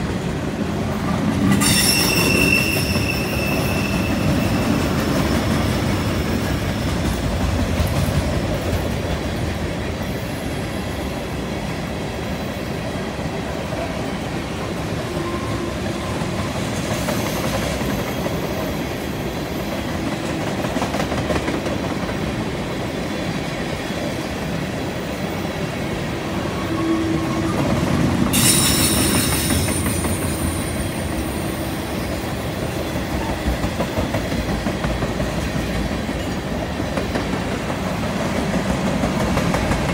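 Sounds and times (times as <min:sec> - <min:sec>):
clickety-clack over rail joints: 0:00.0 - 0:10.5, 0:11.2 - 0:25.7, 0:27.2 - 0:39.9
train wheels rumbling on rails: 0:00.0 - 0:39.9
high-pitched wheel squeal: 0:01.6 - 0:05.4, 0:28.4 - 0:31.0.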